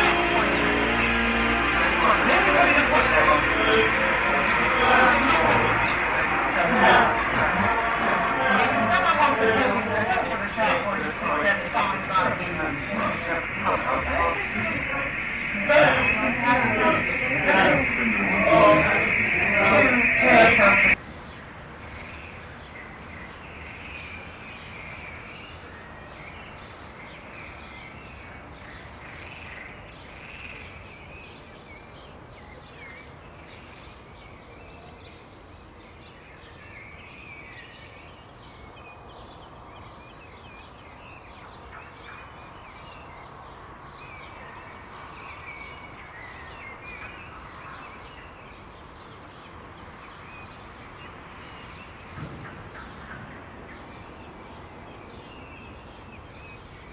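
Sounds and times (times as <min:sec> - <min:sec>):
thin high tone: 0:00.0 - 0:21.0.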